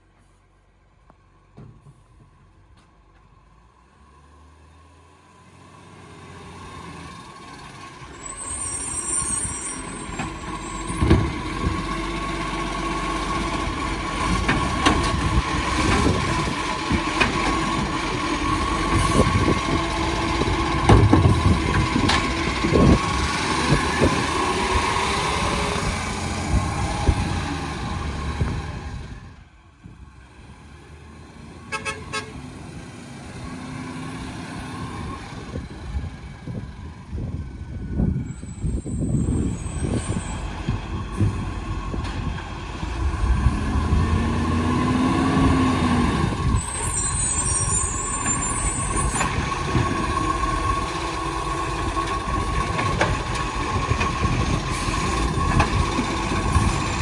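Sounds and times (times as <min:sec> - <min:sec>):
garbage truck engine revving: 0:05.9 - 0:29.3, 0:39.2 - 0:57.0.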